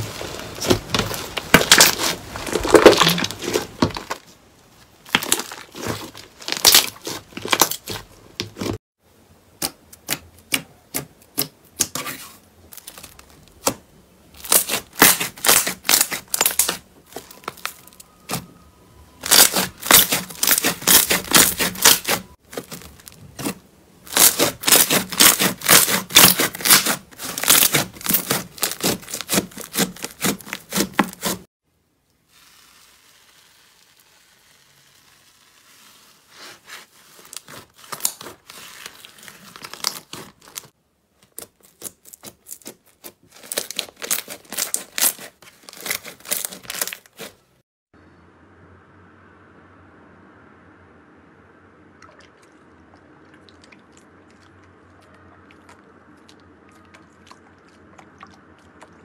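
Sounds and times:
slime crackling and popping: 0.2 - 4.2, 5.0 - 8.7, 14.4 - 18.5, 19.2 - 31.4, 32.3 - 47.3.

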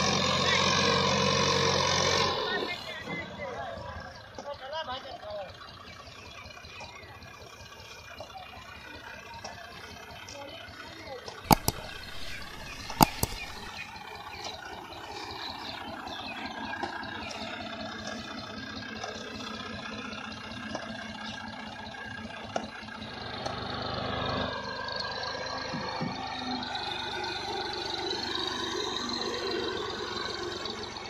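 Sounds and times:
tractor diesel engine idling: 0.0 - 31.0
sharp clicks: 11.4 - 13.7.

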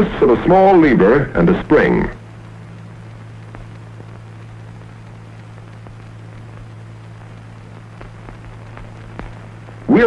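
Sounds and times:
film soundtrack hum and hiss: 0.0 - 10.0
faint ticks: 2.2 - 9.9.

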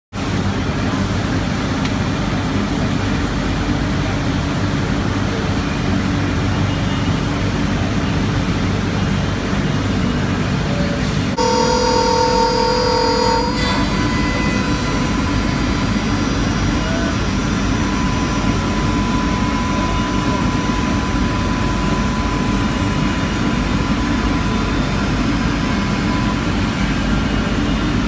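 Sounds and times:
low machinery hum: 0.2 - 28.0
milling spindle whine: 11.4 - 27.8.

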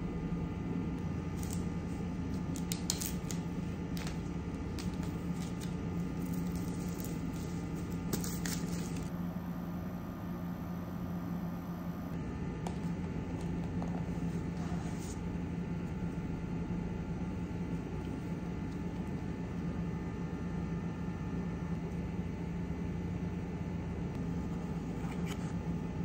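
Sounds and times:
low hum: 0.0 - 26.0
cardboard and plastic handling: 2.3 - 9.1.

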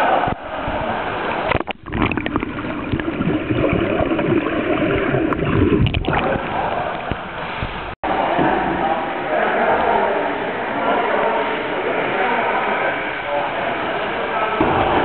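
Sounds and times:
water splashing around a kayak: 0.0 - 8.0
muffled underwater gurgling: 0.2 - 8.0.

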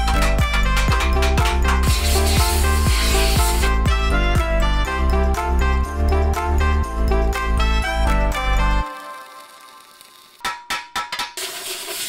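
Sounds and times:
heavy bass notes: 0.0 - 8.8
background music with steady beat: 0.0 - 12.0.

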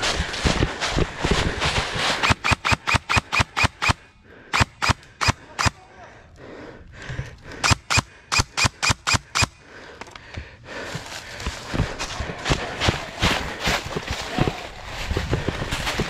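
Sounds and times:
airsoft gun shots: 2.2 - 5.8.

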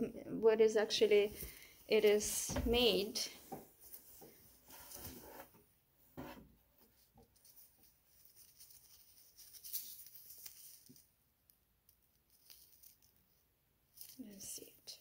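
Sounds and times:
coat fabric rustling: 1.1 - 5.5.

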